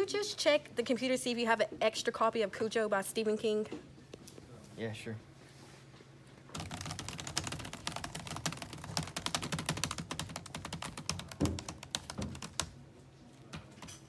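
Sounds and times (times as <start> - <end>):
fast typing on laptop keyboard: 6.5 - 12.8.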